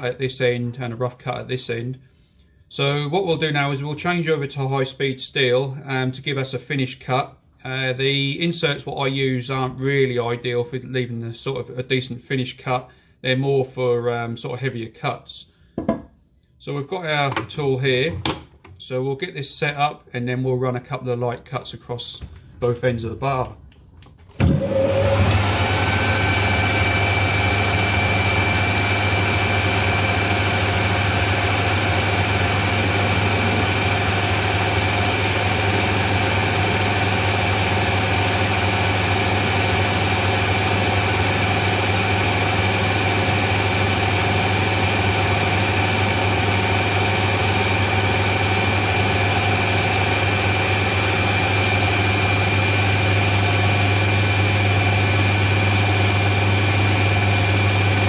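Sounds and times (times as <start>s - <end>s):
metal lathe running: 24.7s - 58.0s.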